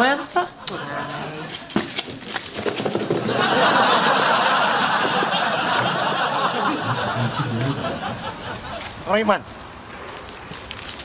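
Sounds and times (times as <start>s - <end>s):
audience laughter: 0.0s - 1.8s, 3.2s - 9.1s.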